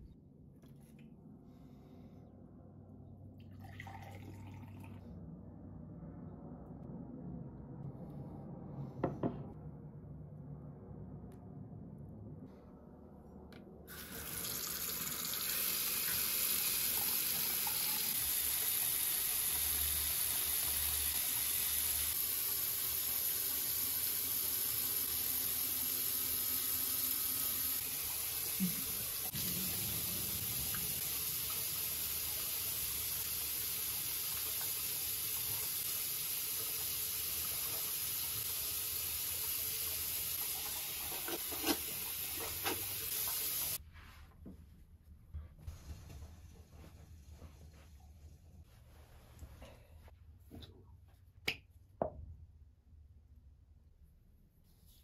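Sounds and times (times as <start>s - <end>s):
faucet water pouring into sink: 13.9s - 43.8s.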